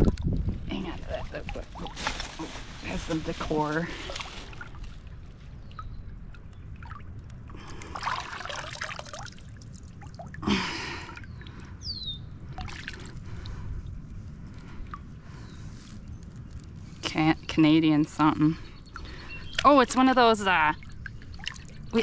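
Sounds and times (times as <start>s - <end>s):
water splashes: 0.0s - 11.7s, 12.4s - 13.6s, 18.9s - 22.0s
river water trickling: 0.0s - 22.0s.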